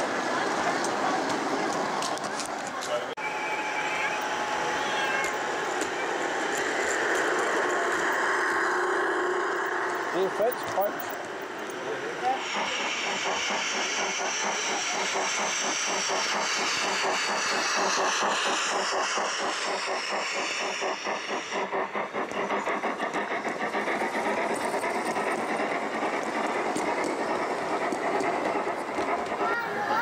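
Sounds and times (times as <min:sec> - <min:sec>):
model train chuffing: 0:00.0 - 0:30.0
high hiss: 0:12.2 - 0:22.6.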